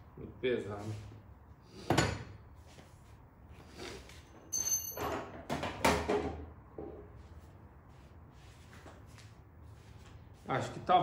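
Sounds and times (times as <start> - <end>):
hard objects knocking and thudding: 5.0 - 7.1.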